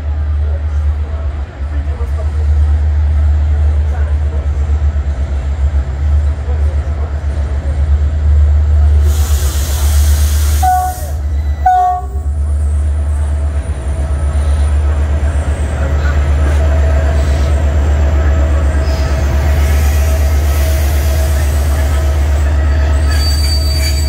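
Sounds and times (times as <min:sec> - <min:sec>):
diesel locomotive engine rumble: 0:00.0 - 0:24.0
train horn blasts: 0:10.6 - 0:12.3
faint wheel squeal: 0:22.7 - 0:24.0.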